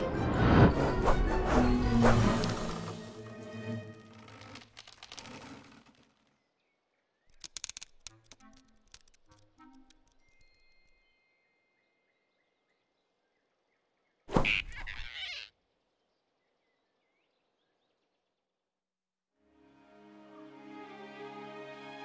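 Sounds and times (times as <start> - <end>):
soft orchestral music: 0.0 - 4.2, 19.4 - 22.0
faint forest ambience: 1.5 - 22.0.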